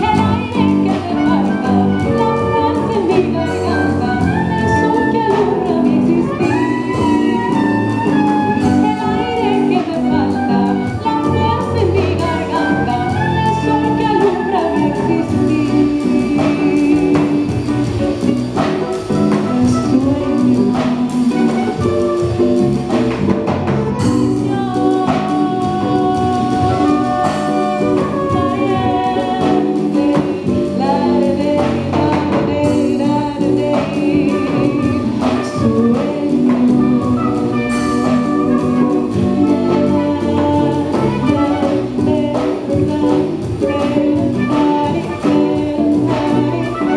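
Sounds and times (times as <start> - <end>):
woman singing: 0.0 - 23.3, 24.0 - 46.9
acoustic guitar: 0.0 - 46.9
electric bass: 0.0 - 46.9
hand percussion: 0.0 - 46.9
saxophone: 0.0 - 46.9.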